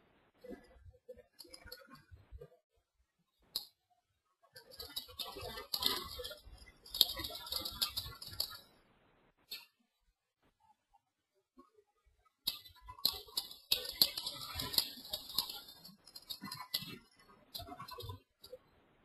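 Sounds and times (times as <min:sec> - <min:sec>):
computer keyboard typing: 0:04.6 - 0:08.7, 0:12.5 - 0:18.6.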